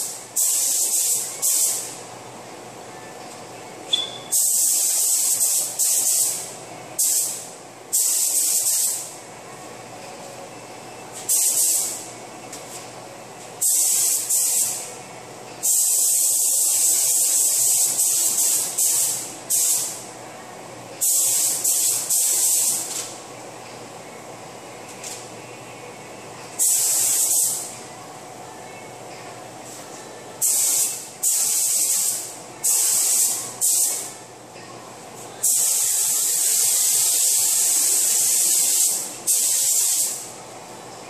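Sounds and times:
paint spray gun hissing: 0:04.3 - 0:06.4, 0:07.0 - 0:09.1, 0:13.6 - 0:14.8, 0:15.6 - 0:20.0, 0:21.0 - 0:22.8, 0:26.6 - 0:27.7, 0:30.4 - 0:34.1, 0:35.4 - 0:40.2.

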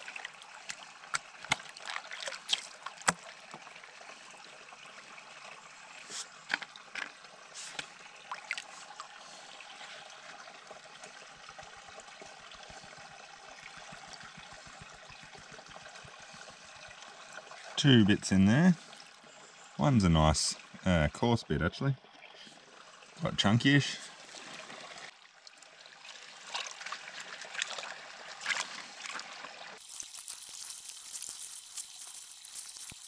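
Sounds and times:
water splashing in a pan: 0:00.0 - 0:04.2, 0:23.8 - 0:33.0
gravel knocking in a pan: 0:29.8 - 0:33.0.

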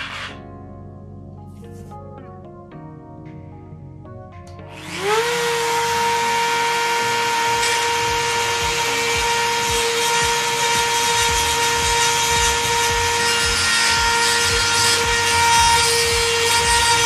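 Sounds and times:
rotary tool high whine grinding: 0:00.0 - 0:00.4, 0:04.7 - 0:17.0.

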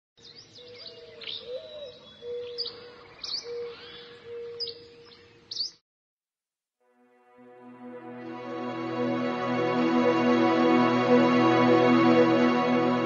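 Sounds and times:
birds chirping: 0:00.2 - 0:05.8.

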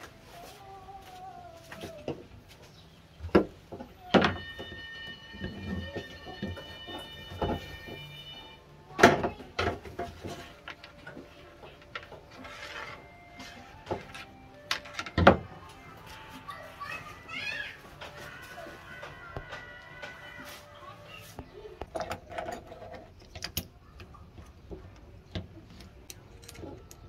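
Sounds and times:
steady high ringing tone: 0:04.1 - 0:08.8
plastic pipes knocking: 0:18.9 - 0:20.5.

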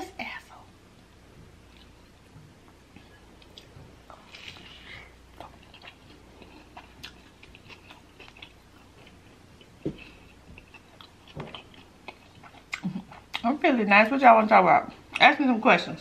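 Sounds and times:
person chewing food: 0:01.6 - 0:13.5.

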